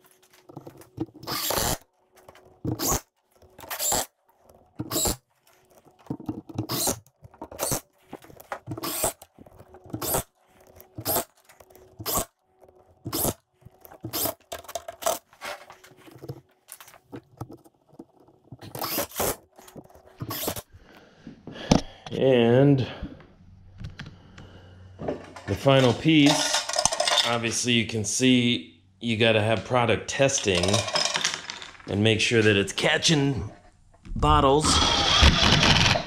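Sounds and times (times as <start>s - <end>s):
drill driving screws into wood: 1.2s - 1.8s, 6.6s - 7.0s, 8.7s - 9.2s, 12.0s - 12.3s, 13.1s - 13.4s, 18.7s - 19.4s, 34.6s - 36.0s.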